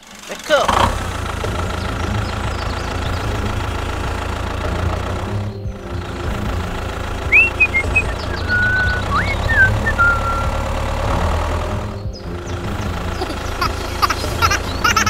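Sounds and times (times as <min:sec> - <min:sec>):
tractor engine running: 0:00.0 - 0:15.0
whistle-like chirps: 0:07.3 - 0:10.6.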